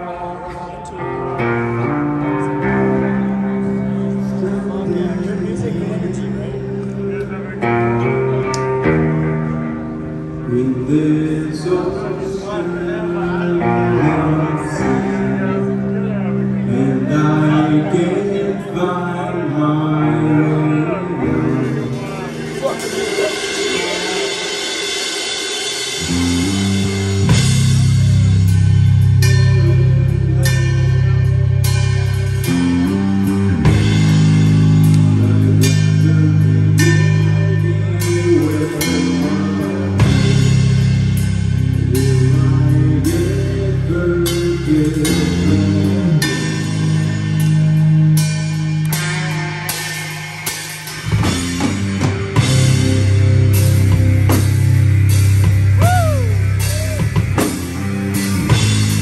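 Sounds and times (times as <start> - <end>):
bass guitar riffing: 0.0 - 59.0
electric guitar riffing: 0.0 - 59.0
drum kit with cymbal crashes: 21.6 - 42.4, 44.3 - 59.0.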